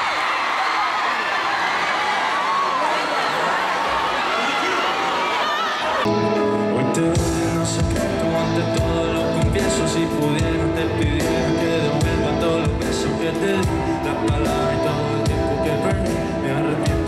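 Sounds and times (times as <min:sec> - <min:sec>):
live pop band playing: 0:06.1 - 0:17.0.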